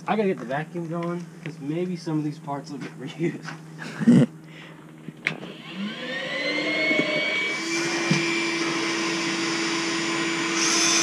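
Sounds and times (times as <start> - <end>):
vacuum cleaner motor whine: 5.0 - 11.0.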